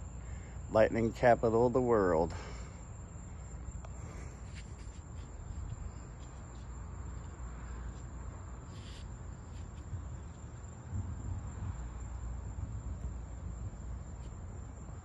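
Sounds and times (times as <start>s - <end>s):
faint hiss: 0.0s - 12.4s.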